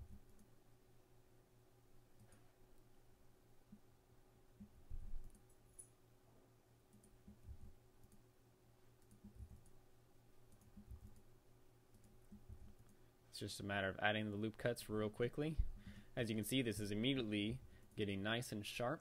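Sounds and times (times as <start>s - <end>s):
faint steady hum: 0.0s - 19.0s
computer mouse and keyboard clicks: 6.9s - 8.3s, 9.0s - 9.8s, 10.5s - 11.3s, 11.9s - 13.0s.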